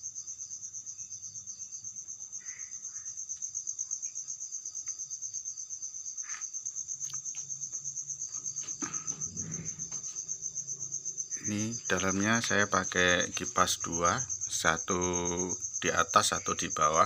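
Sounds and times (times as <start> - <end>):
cricket chirping: 0.0 - 17.0
faint low hum: 7.0 - 17.0.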